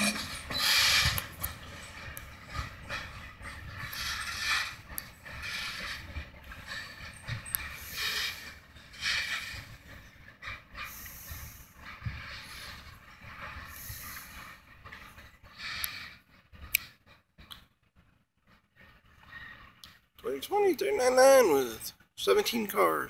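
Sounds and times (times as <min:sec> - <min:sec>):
freight cars clanking on track: 0:00.0 - 0:16.2
metallic wheel squeals: 0:00.0 - 0:16.2.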